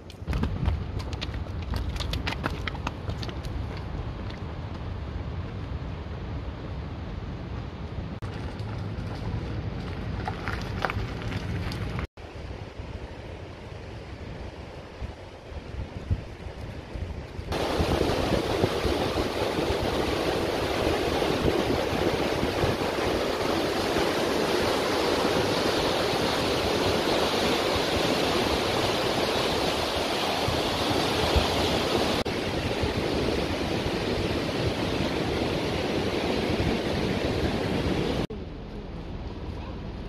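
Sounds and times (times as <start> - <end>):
river rushing over rocks: 17.5 - 38.3.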